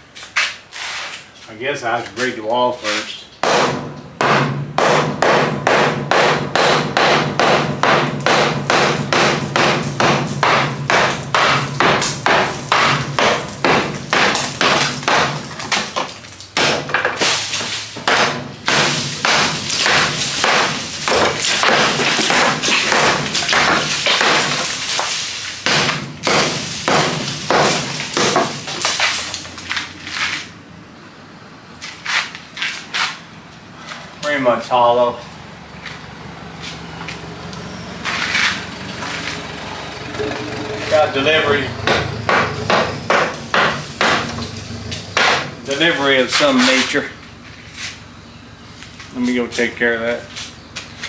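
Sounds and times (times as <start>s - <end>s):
hammer striking concrete block wall: 3.4s - 29.2s, 40.9s - 45.9s.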